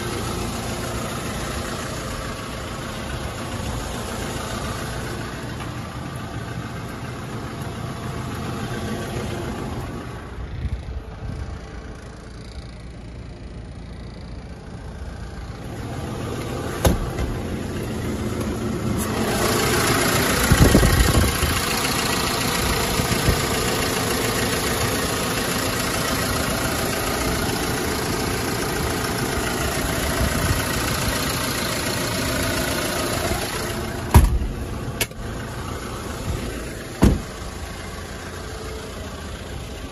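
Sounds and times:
diesel engine idling: 0:00.0 - 0:39.9
sharp thump: 0:16.8 - 0:17.4, 0:34.1 - 0:35.2, 0:37.0 - 0:37.4.

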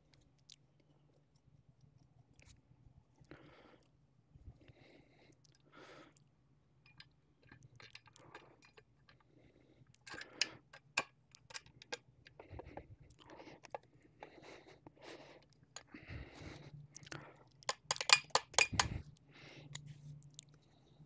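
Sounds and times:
clicks and taps of metal parts: 0:06.9 - 0:09.2, 0:10.0 - 0:12.7, 0:17.6 - 0:19.0.

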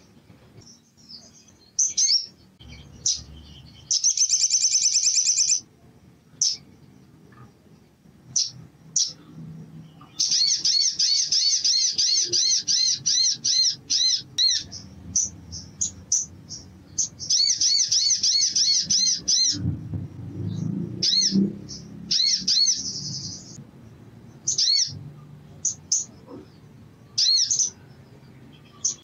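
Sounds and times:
sunbird singing high sharp notes: 0:00.9 - 0:05.7
low rumble: 0:19.2 - 0:24.4.

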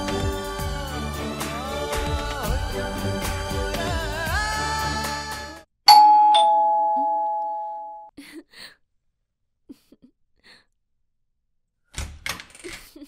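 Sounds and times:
background music: 0:00.0 - 0:05.7
two-tone electronic doorbell: 0:05.9 - 0:08.1.

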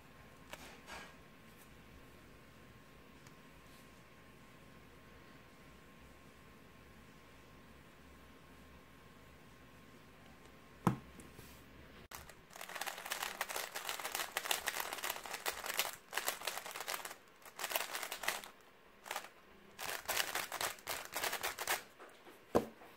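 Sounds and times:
puzzle cube clicking while turned: 0:12.1 - 0:21.8.

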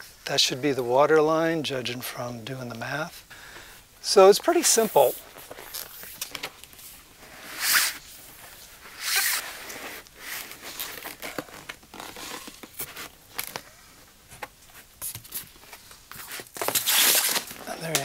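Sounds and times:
plastic sheet rustling and creaking: 0:04.1 - 0:18.0
plastic sheet rasping: 0:04.6 - 0:13.7, 0:15.0 - 0:18.0.

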